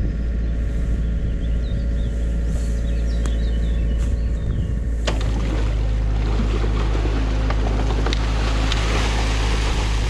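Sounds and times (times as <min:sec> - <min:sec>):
excavator diesel engine: 0:00.0 - 0:10.0
water splashing and pouring: 0:05.1 - 0:10.0.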